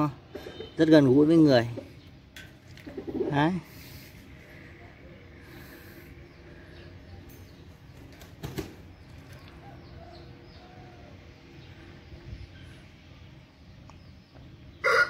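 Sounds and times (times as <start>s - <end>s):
birds calling faintly: 0.0s - 15.0s
wings flapping rustle: 8.0s - 9.4s.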